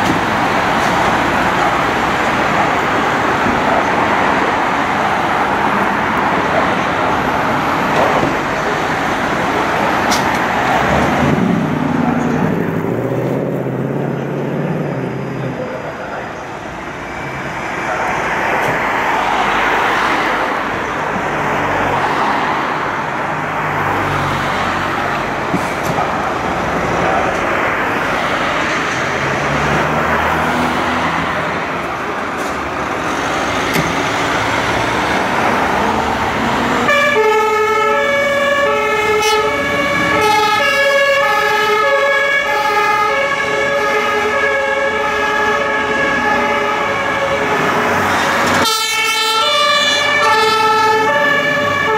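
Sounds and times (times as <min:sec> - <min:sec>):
diesel engines running: 0:00.0 - 0:51.9
van passing: 0:00.0 - 0:51.9
two-tone siren horn: 0:36.8 - 0:48.0, 0:48.6 - 0:51.9.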